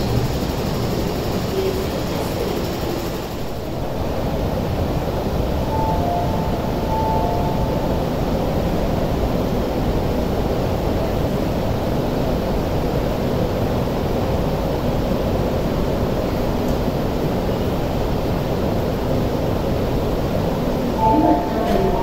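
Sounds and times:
train low rumble: 0.0s - 22.0s
faint tones: 21.0s - 22.0s.

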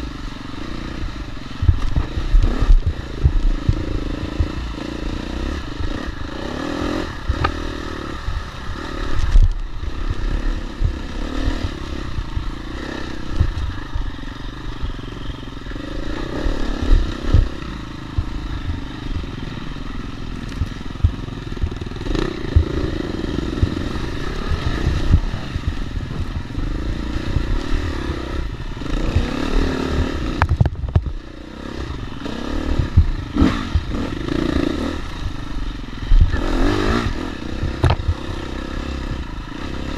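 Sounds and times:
dirt bike engine revving: 0.0s - 39.9s
bike knocks and rattles: 30.0s - 31.3s, 36.2s - 38.2s.

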